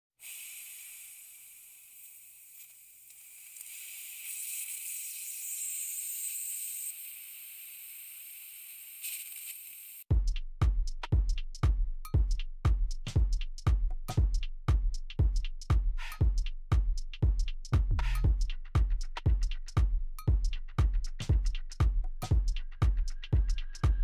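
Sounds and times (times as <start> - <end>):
high-pitched hiss: 0.2 - 10.1
electronic music with heavy bass: 10.1 - 24.0.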